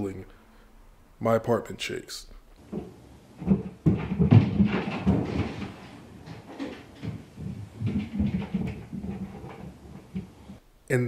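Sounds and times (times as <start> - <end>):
thumps through ceiling: 2.6 - 10.6.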